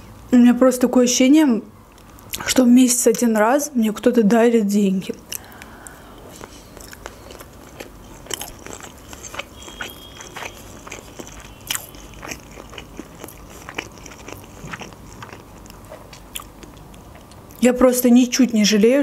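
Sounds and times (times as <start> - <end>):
close-up chewing with crunches: 5.3 - 17.6.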